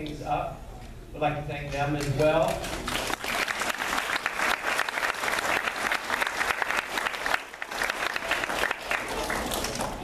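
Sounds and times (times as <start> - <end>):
children applauding: 2.6 - 10.0.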